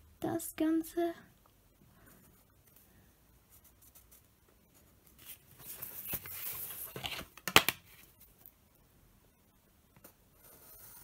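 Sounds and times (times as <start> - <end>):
pencil scratching on paper: 10.0 - 11.0.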